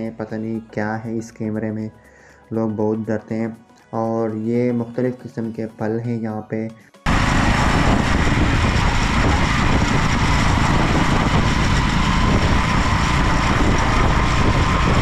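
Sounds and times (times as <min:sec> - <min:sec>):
vehicle engine and wind roar: 0:07.1 - 0:15.0.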